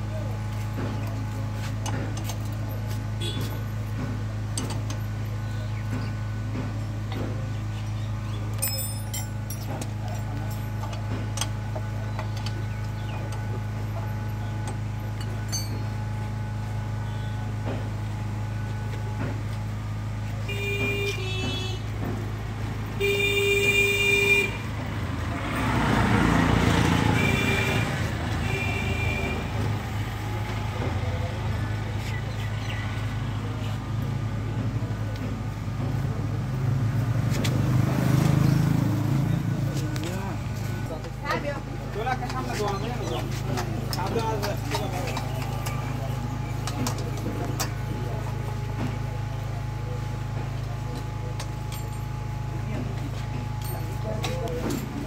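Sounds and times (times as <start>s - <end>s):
vehicle horn tooting: 3.2s - 3.6s, 20.4s - 22.0s, 23.0s - 24.7s, 26.9s - 29.8s
vehicle passing: 24.6s - 32.1s, 36.2s - 46.0s.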